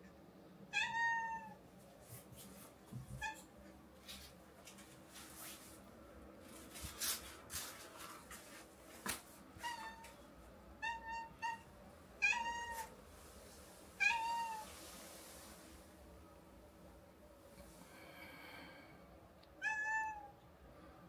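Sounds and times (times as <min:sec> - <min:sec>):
cat meowing: 0:00.7 - 0:01.6, 0:10.8 - 0:12.9, 0:14.0 - 0:14.7, 0:19.6 - 0:20.3.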